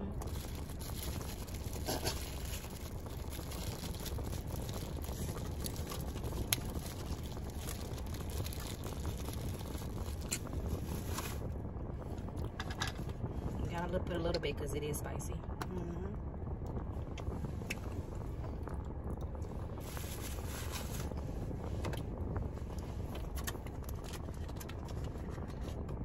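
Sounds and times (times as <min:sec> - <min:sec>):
car interior hum: 0:00.0 - 0:26.0
food wrapper clicks and rustles: 0:00.2 - 0:11.5, 0:23.1 - 0:25.8.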